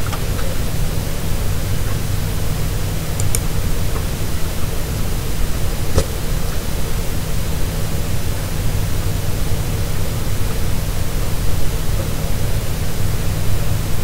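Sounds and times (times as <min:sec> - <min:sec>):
low electrical hum: 0:00.0 - 0:14.0
microphone hiss: 0:00.0 - 0:14.0.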